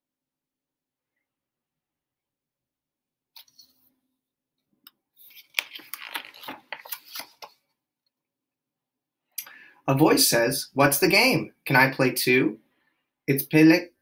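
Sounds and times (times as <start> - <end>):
book pages turning: 3.4 - 3.8, 5.1 - 7.8.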